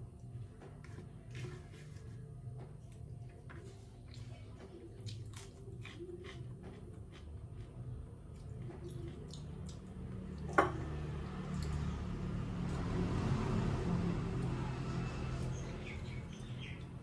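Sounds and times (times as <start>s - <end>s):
chewing: 2.8s - 10.5s.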